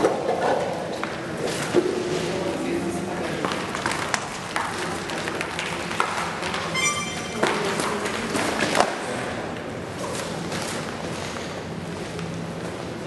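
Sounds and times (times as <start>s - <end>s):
brief high tone: 6.7s - 7.9s.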